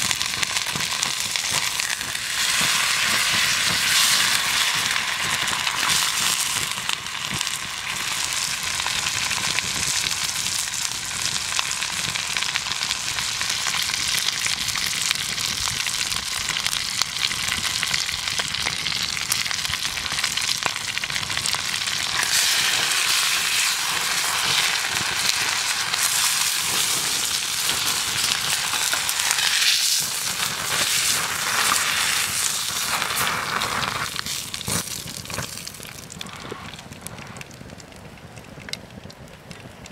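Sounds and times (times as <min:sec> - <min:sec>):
steak sizzling in butter: 0:00.0 - 0:36.6.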